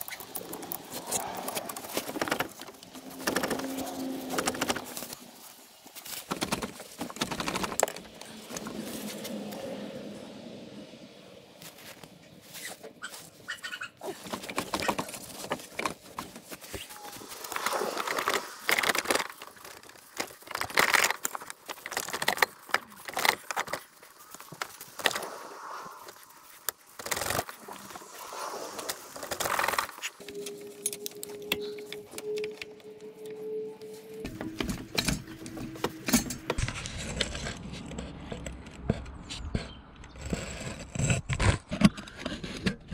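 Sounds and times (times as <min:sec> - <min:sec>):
tools and metal parts clinking: 0:34.3 - 0:37.6.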